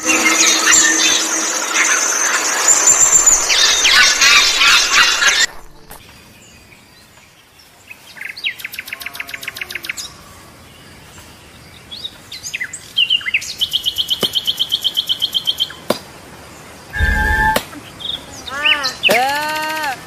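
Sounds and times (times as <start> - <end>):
bird chirps: 1.9 - 6.2, 17.0 - 18.2
bird trilling: 2.7 - 6.0, 17.0 - 17.6.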